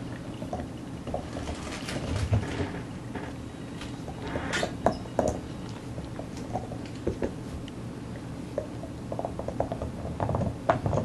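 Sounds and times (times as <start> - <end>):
dog gnawing a bone: 8.6 - 11.0.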